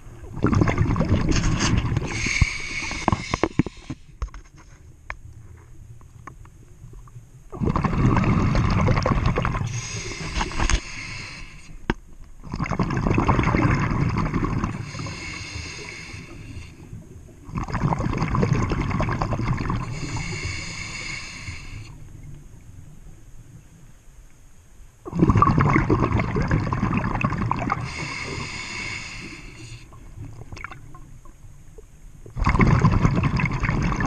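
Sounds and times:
diver exhaling bubbles underwater: 0:00.3 - 0:03.9, 0:07.5 - 0:11.0, 0:12.4 - 0:16.5, 0:17.4 - 0:20.4, 0:25.0 - 0:30.9, 0:32.3 - 0:34.0.

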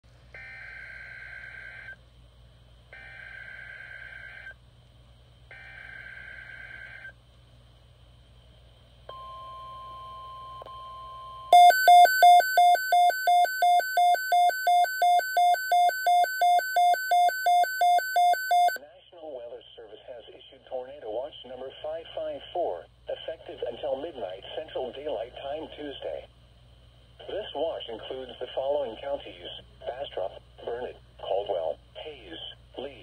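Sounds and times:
rapid alarm beeping: 0:11.5 - 0:18.8.

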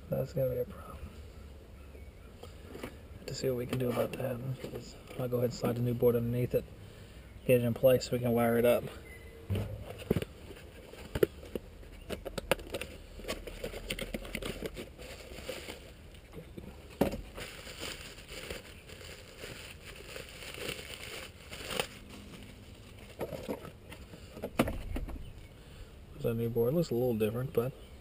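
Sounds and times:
sharp knocks: 0:09.5 - 0:10.2
plastic bag crinkling: 0:09.7 - 0:16.2, 0:17.2 - 0:23.6.

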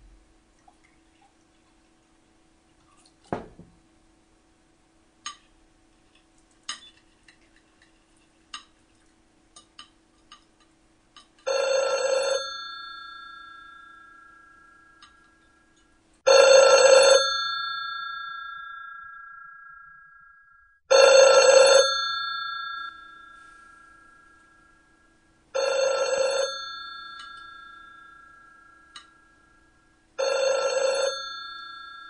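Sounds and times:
telephone bell ringing: 0:11.5 - 0:14.9, 0:16.3 - 0:19.9, 0:20.9 - 0:24.5, 0:25.5 - 0:28.9, 0:30.2 - 0:32.0.

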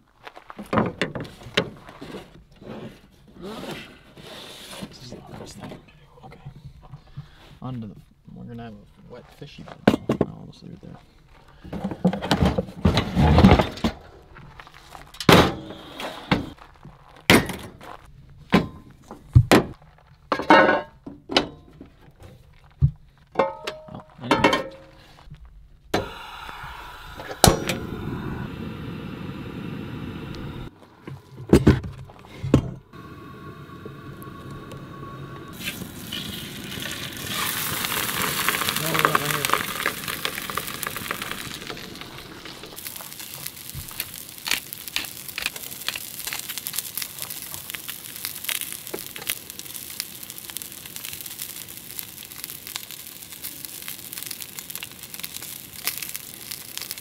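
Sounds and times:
fish sizzling in oil: 0:35.5 - 0:57.0.

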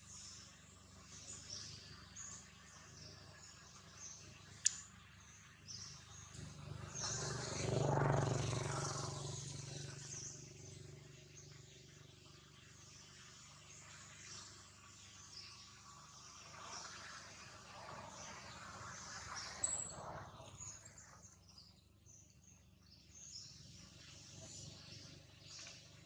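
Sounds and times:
small birds chirping: 0:00.0 - 0:26.0
sharp click: 0:04.6 - 0:04.9
motor vehicle passing: 0:05.4 - 0:14.3.

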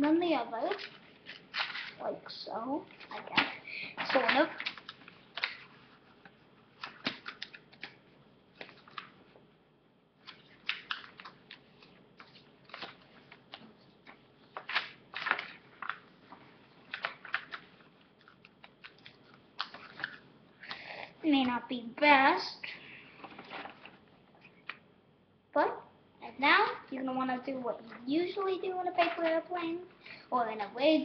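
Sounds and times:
paper crinkling and rustling: 0:00.6 - 0:02.1, 0:02.9 - 0:09.2, 0:10.2 - 0:20.2, 0:23.2 - 0:24.1, 0:27.8 - 0:29.5.

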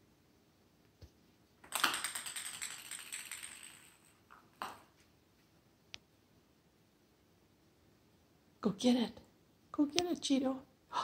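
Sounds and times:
ping pong ball bouncing on wood floor: 0:01.6 - 0:04.9.

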